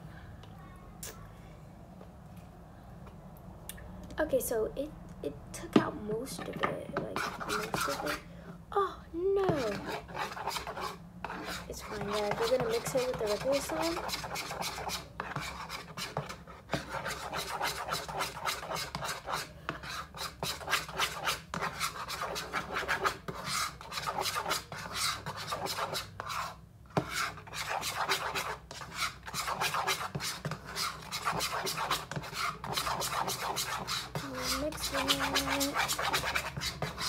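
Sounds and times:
metal spoon scraping plastic bowl: 6.3s - 8.2s, 9.4s - 37.0s.

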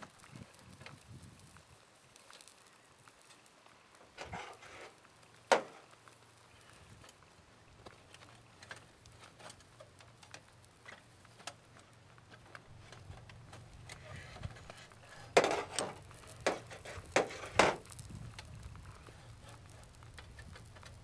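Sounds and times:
metal sticks clinking and scraping: 8.0s - 18.0s, 19.0s - 21.0s.

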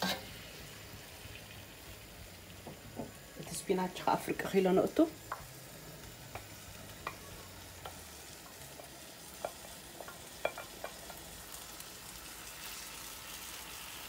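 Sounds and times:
vegetables sizzling in a wok: 0.0s - 14.0s
spoon knocking against dish: 9.4s - 11.1s.

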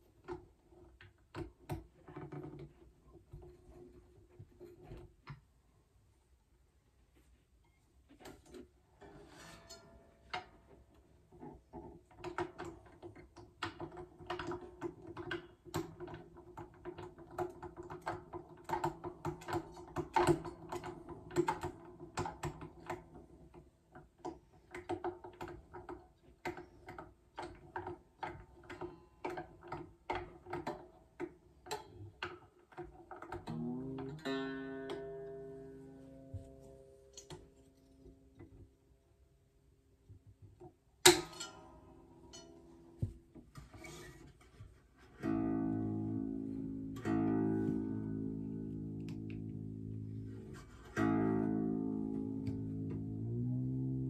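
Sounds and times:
guitar tuner clicking: 12.2s - 38.6s, 45.2s - 54.0s
guitar string rising in pitch: 33.4s - 37.4s, 45.2s - 54.0s.

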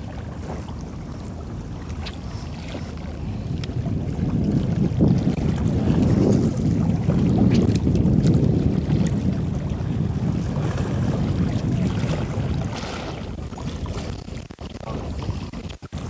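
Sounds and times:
wind buffeting the microphone: 0.0s - 16.0s.

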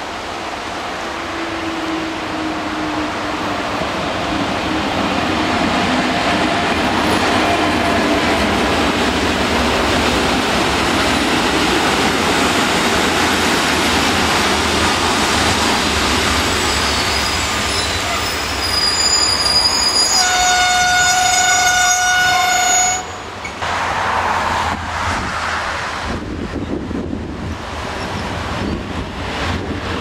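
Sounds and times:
train wheels rumbling on rails: 0.0s - 30.0s
train brakes squealing: 16.4s - 23.6s.

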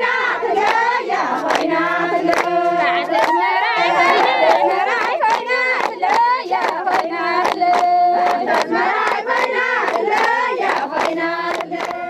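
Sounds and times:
crowd singing together: 0.0s - 12.0s
rhythmic hand clapping: 0.0s - 12.0s.

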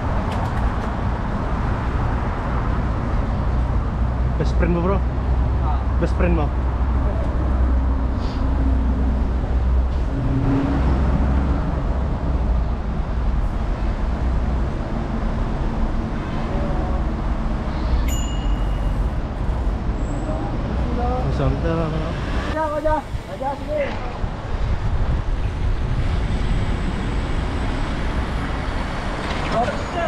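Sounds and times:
road traffic noise: 0.0s - 30.0s
wind rumble on microphone: 22.3s - 29.8s.

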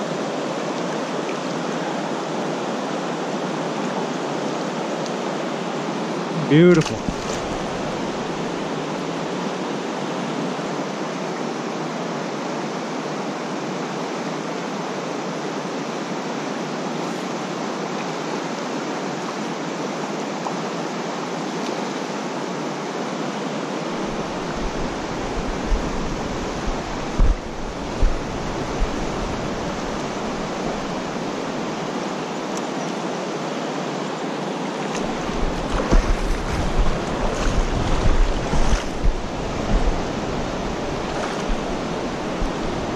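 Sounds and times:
creek rushing: 0.0s - 42.9s
wind buffeting microphone: 23.9s - 31.8s, 35.0s - 42.9s.

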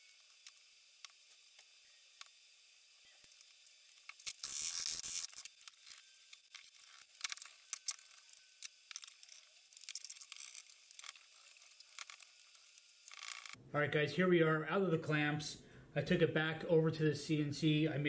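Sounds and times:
small metal clicks and ticks: 5.2s - 13.6s.

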